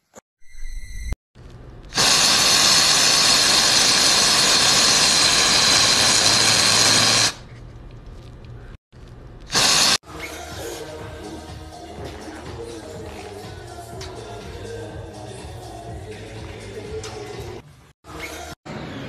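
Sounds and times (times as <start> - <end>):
aerosol spray can hissing: 2.0 - 7.4, 9.5 - 10.0.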